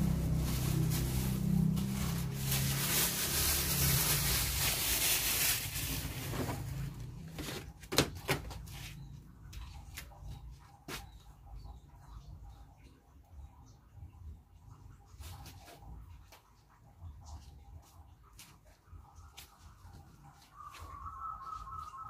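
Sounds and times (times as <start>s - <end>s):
cloth rustling: 0.0s - 7.6s.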